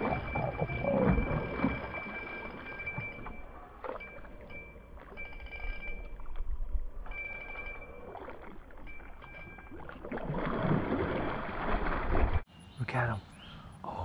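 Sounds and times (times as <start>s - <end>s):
high steady tone: 0.0s - 10.1s
water sloshing and splashing: 0.0s - 12.5s.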